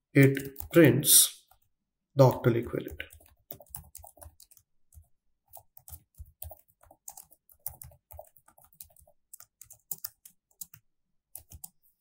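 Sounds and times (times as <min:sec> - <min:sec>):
computer keyboard typing: 0:00.3 - 0:00.9, 0:02.8 - 0:11.8.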